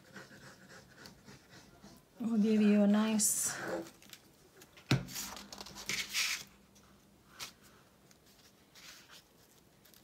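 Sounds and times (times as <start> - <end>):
paper rustling: 4.9 - 6.6, 7.3 - 10.0.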